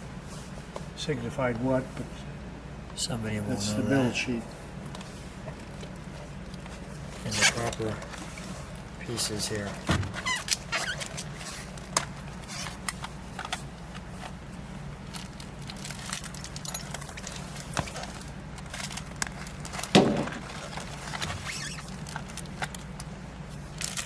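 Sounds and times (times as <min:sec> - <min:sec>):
steady low hum: 0:00.0 - 0:24.0
plastic pouch rustling: 0:15.0 - 0:23.1.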